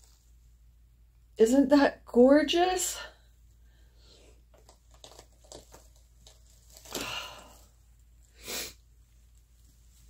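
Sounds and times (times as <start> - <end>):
blanket rustling and clicks: 4.5 - 7.7.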